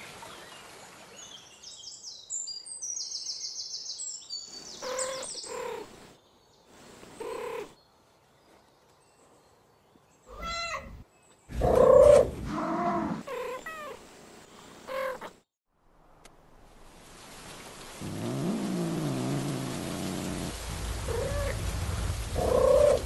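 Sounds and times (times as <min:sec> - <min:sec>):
cat meowing: 0:10.3 - 0:11.0.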